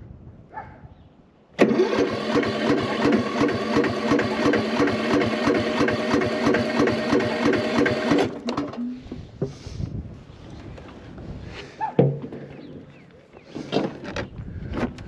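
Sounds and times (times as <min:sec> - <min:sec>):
mower starter cranking engine: 0:01.6 - 0:09.0.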